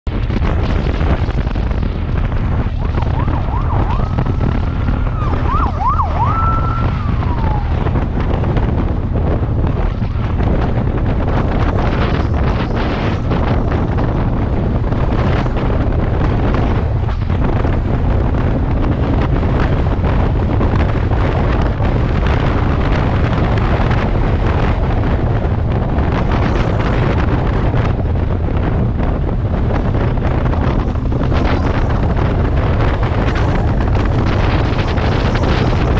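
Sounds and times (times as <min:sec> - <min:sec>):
road noise: 0:00.0 - 0:35.9
wind rush: 0:00.0 - 0:35.9
siren wailing: 0:02.7 - 0:08.2.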